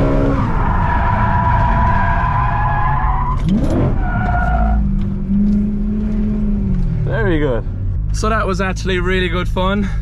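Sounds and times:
car engine revving: 0.0 - 9.6
road noise: 0.0 - 10.0.

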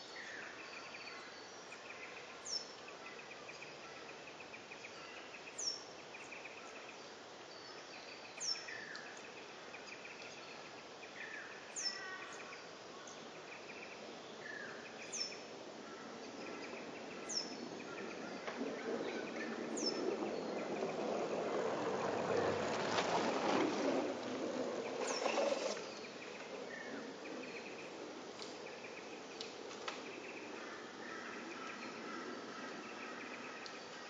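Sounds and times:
broad noise: 14.8 - 34.0.

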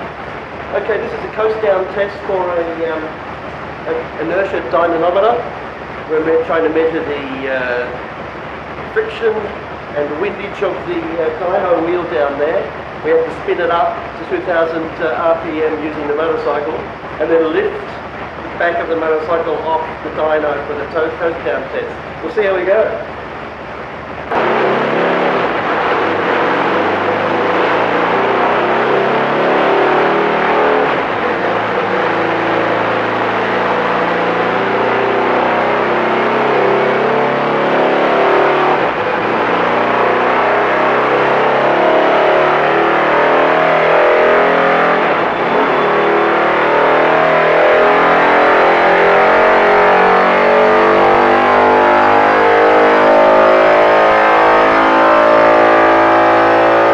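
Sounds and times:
motorcycle engine running hard: 24.1 - 56.9.

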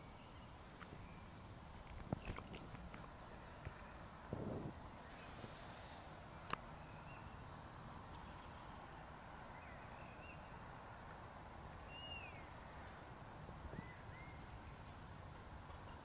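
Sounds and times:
bird chirps: 11.8 - 13.0, 13.6 - 16.0.

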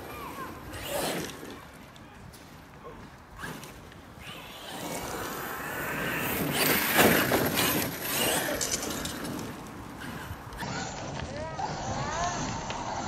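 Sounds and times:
rc truck electric motor running: 4.2 - 13.0.

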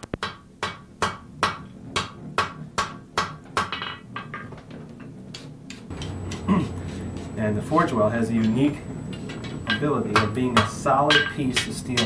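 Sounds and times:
hammer striking steel on anvil: 0.2 - 4.5, 7.8 - 12.0.

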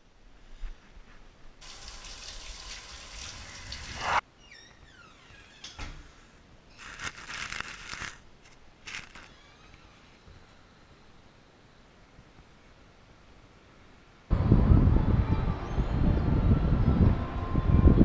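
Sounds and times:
running water: 1.6 - 4.2.

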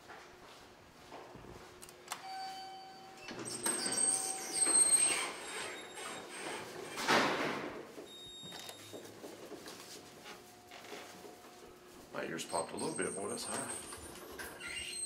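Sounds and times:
elevator chime: 2.2 - 6.3, 8.0 - 9.1, 12.3 - 15.0.

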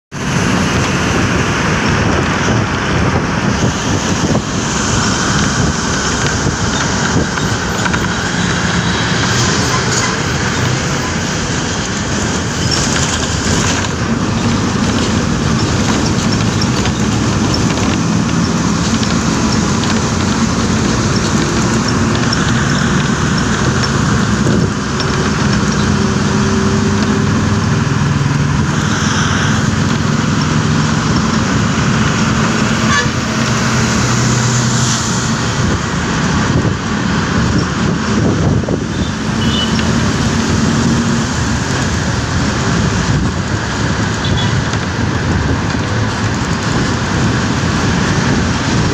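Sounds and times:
road noise: 0.0 - 48.9
bus diesel engine: 0.1 - 48.9
vehicle horns honking: 8.4 - 10.7, 32.8 - 33.5, 38.9 - 39.9, 44.2 - 44.6.

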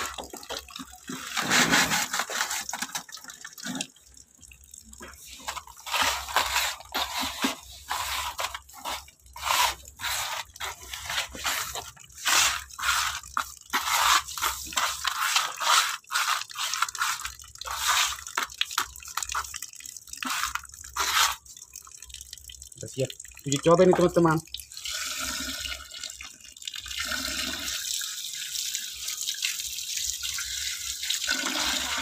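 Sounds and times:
hands scrubbing wet gritty media: 0.0 - 3.8, 5.0 - 21.5
water running and dripping: 0.0 - 32.0.

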